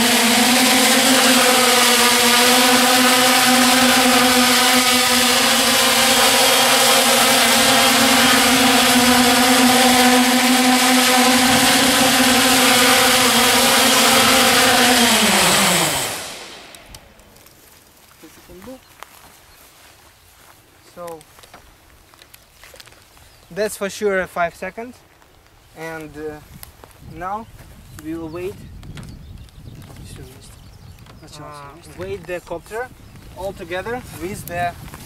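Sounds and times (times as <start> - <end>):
drone motors buzzing whine: 0.0 - 17.8.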